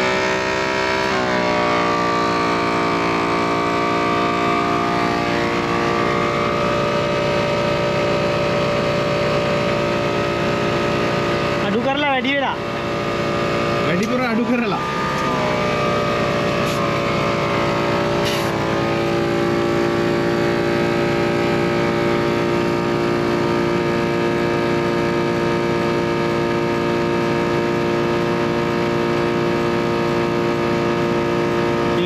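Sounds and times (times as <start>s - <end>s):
air compressor motor hum: 0.0s - 32.0s
short air hisses: 18.2s - 18.6s.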